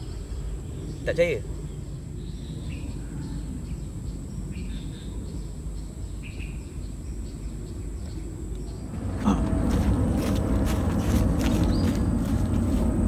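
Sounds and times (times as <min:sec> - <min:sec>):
low uneven rumbling: 0:08.7 - 0:13.0.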